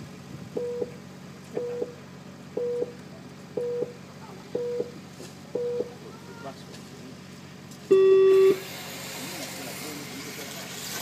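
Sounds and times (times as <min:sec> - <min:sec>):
steady low hum: 0:00.0 - 0:08.6
short low beeps: 0:00.6 - 0:01.0, 0:01.6 - 0:06.0, 0:07.9 - 0:08.6.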